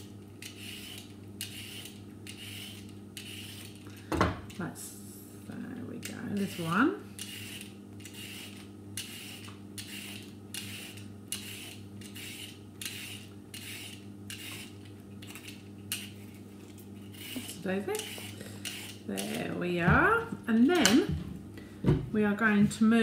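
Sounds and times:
peeler scraping carrot: 0:00.0 - 0:03.8, 0:06.0 - 0:19.6.

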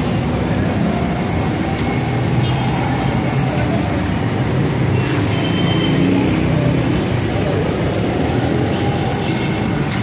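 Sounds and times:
street traffic engines: 0:00.0 - 0:10.0.

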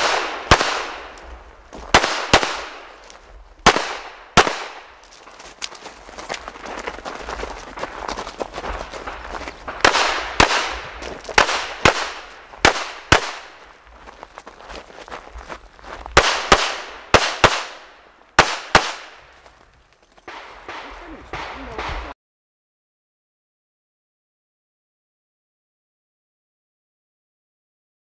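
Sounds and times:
pistol shots cracking: 0:00.0 - 0:01.3, 0:01.9 - 0:05.1, 0:09.1 - 0:13.6, 0:16.2 - 0:19.2, 0:20.3 - 0:22.1.

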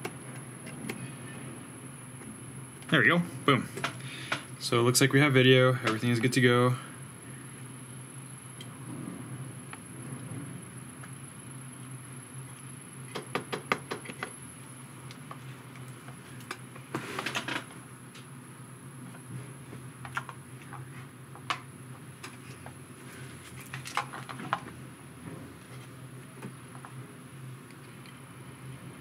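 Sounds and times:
faint high whine: 0:00.0 - 0:29.0
steady low hum: 0:00.0 - 0:29.0.

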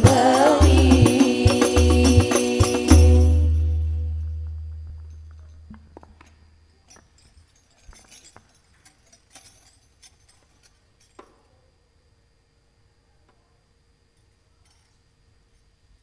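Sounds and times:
low musical note: 0:02.9 - 0:05.7.

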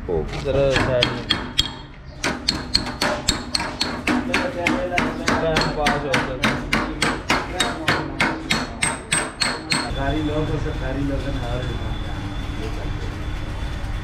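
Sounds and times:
hammer striking steel bar: 0:00.7 - 0:09.9.

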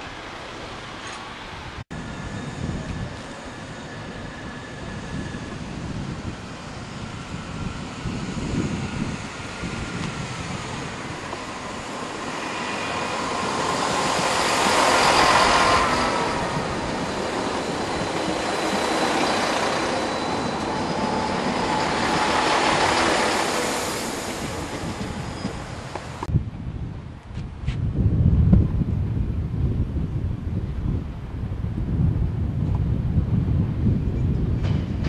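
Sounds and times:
train engines passing: 0:00.0 - 0:26.3
thin squealing tones: 0:11.4 - 0:26.0.

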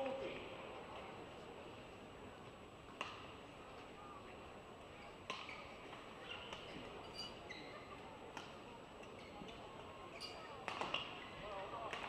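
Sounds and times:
murmur of arena crowd: 0:00.0 - 0:12.0
racket hitting shuttlecock: 0:10.6 - 0:11.1.

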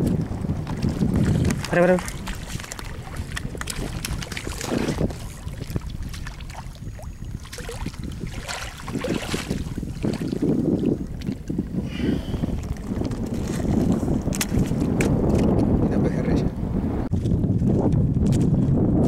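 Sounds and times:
wind buffeting microphone: 0:00.0 - 0:19.0
waves lapping on rocks: 0:00.7 - 0:10.5.

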